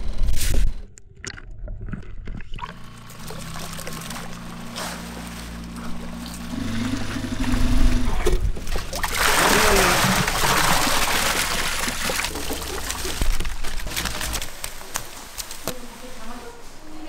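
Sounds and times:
motor running: 2.6s - 8.7s.

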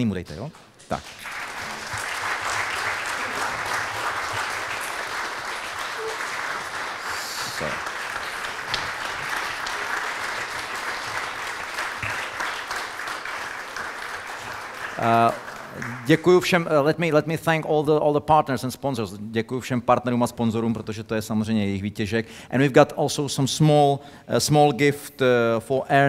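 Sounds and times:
audience applauding: 0.9s - 16.4s.

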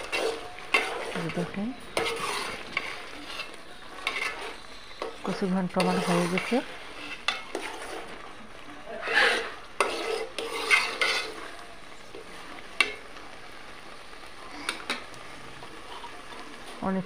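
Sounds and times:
metal spatula scraping curry in pot: 0.0s - 8.3s, 8.9s - 11.5s.

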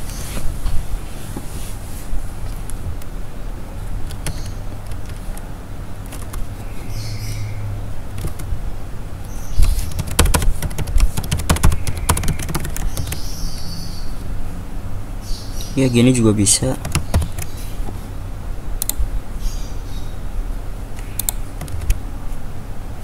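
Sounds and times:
steady low hum: 0.0s - 23.0s
typing on computer keyboard: 4.0s - 5.4s, 6.1s - 6.4s, 8.2s - 8.5s, 9.9s - 13.2s, 16.8s - 17.5s, 21.0s - 22.0s.

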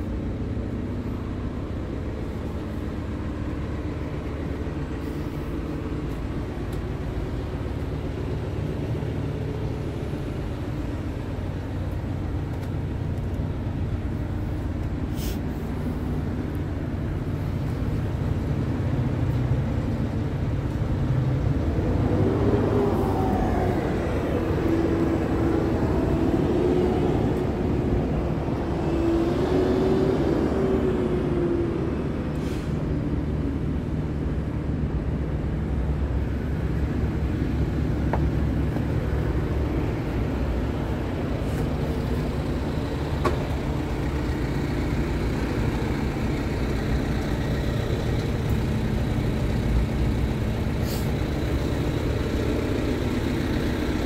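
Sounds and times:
truck engine idling: 0.0s - 28.9s, 30.2s - 54.0s.

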